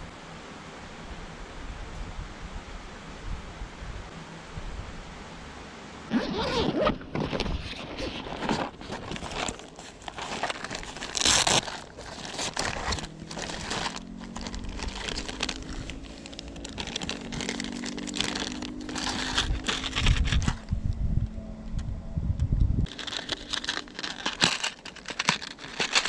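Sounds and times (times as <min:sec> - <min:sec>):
plastic bag rustling and crinkling: 0:06.1 - 0:20.8, 0:22.8 - 0:26.0.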